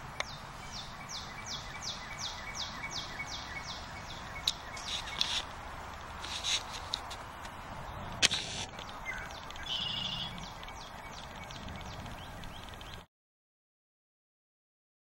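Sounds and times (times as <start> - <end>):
bird singing: 0.0 - 5.4, 8.7 - 13.1
background hiss: 0.0 - 13.0
sharp clicks: 4.4 - 13.1.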